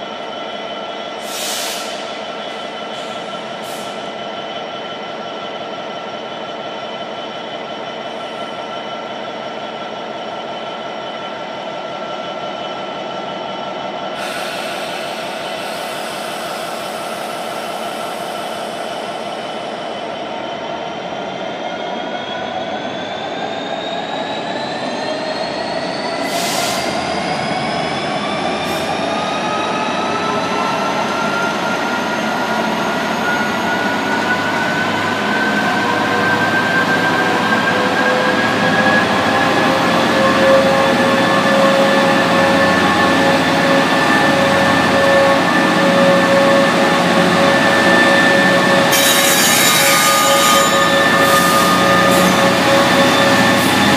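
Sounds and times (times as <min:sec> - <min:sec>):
air hisses: 0:01.2 - 0:02.1
diesel locomotive engine running: 0:31.4 - 0:53.9.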